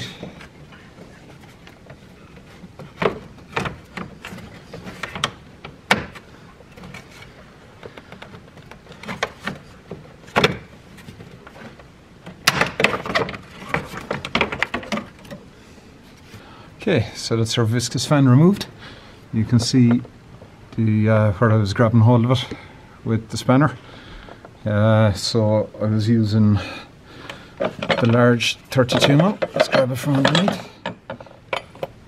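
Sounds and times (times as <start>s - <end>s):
plastic knocking and scraping: 0.0s - 15.4s.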